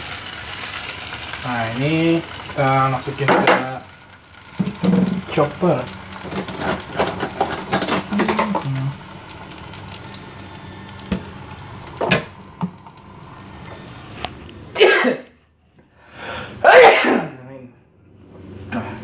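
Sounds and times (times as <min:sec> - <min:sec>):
food sizzling in hot oil: 0:00.0 - 0:14.8
metal utensil scraping frying pan: 0:06.1 - 0:08.6.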